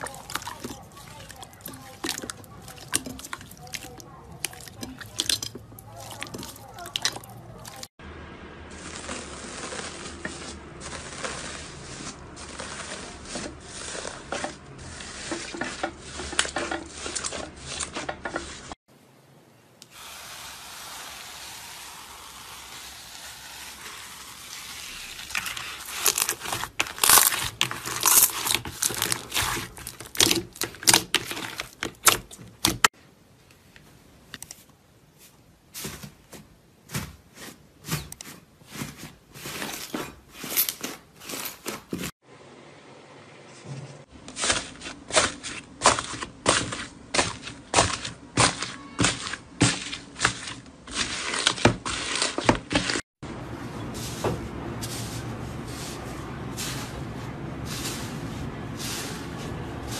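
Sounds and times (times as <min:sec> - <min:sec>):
foil crinkling in slime: 0:08.7 - 0:14.2, 0:22.4 - 0:32.4
slime crackling and popping: 0:22.8 - 0:32.2.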